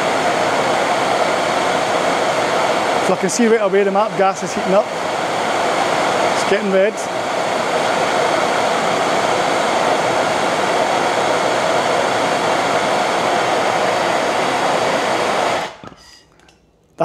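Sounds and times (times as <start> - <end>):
gas torches hissing: 0.0 - 16.0.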